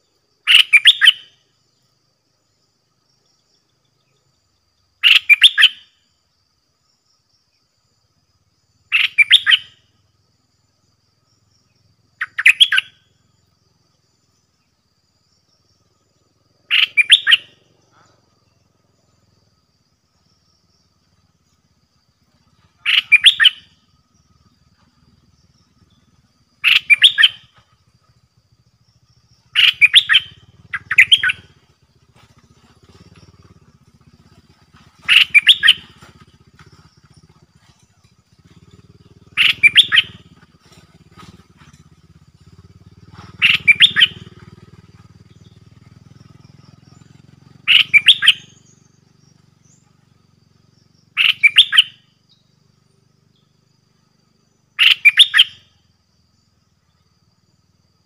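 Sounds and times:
bird singing song phrases: 0.0s - 1.4s, 3.4s - 5.9s, 8.8s - 9.9s, 11.4s - 13.2s, 14.2s - 19.5s, 20.2s - 28.1s, 29.0s - 50.3s, 51.0s - 52.6s, 54.5s - 55.6s.

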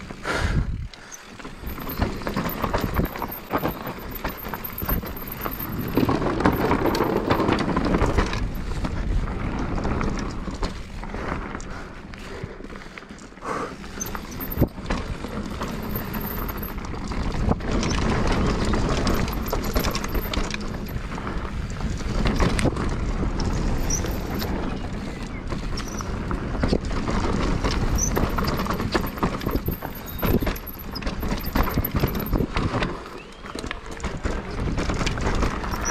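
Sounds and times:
bike knocks and rattles: 0.0s - 35.9s
bike tyres rumbling on dirt: 0.0s - 35.9s.

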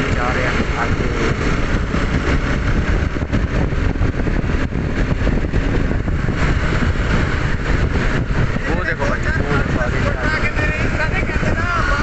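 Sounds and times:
motorcycle engine running: 0.0s - 12.0s
wind rush on microphone: 0.0s - 12.0s.

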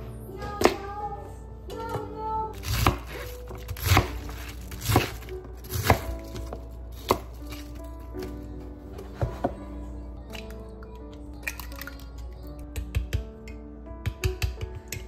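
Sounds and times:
knife chopping on wooden board: 2.6s - 7.2s.

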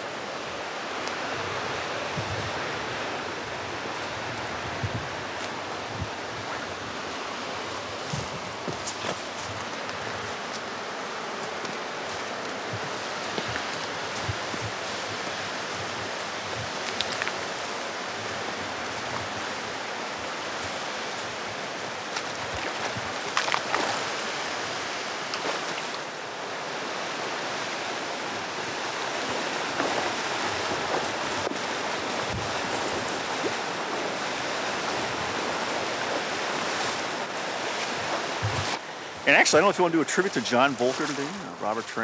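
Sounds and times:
legs splashing through water: 0.0s - 26.2s, 27.4s - 38.9s, 39.6s - 41.6s
fast-flowing river rushing: 0.0s - 42.0s.

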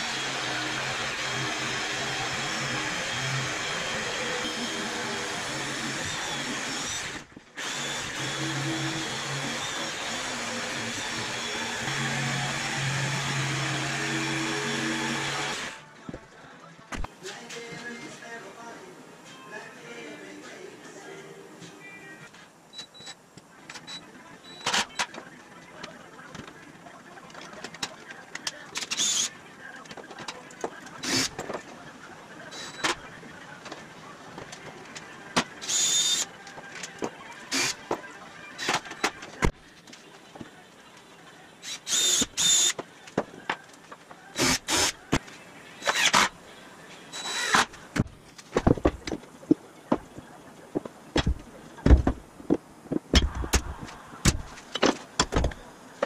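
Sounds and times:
cordless drill driving screws: 37.5s - 37.8s, 41.7s - 42.8s, 44.4s - 44.9s, 45.8s - 46.3s, 47.2s - 47.7s.

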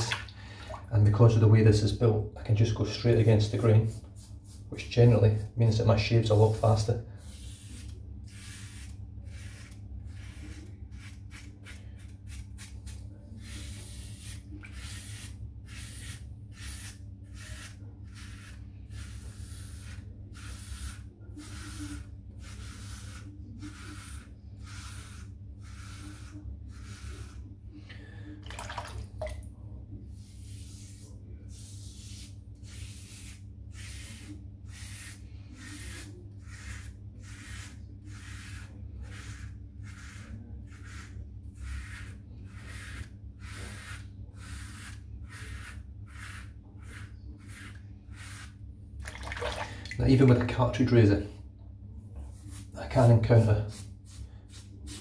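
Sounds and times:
razor scraping stubble: 5.6s - 27.5s, 31.7s - 48.6s.

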